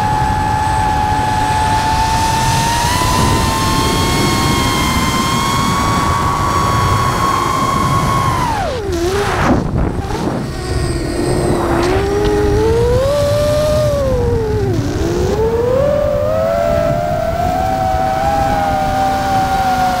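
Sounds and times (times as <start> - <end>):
drone motors whining: 0.0 - 20.0
wind rushing: 1.5 - 20.0
brief whooshes: 9.2 - 12.5.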